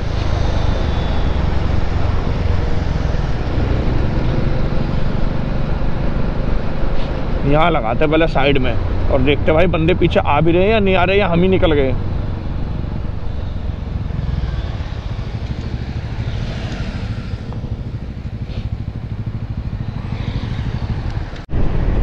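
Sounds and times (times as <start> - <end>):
motorcycle engine running: 0.0 - 21.5
motorcycles passing: 0.0 - 22.0.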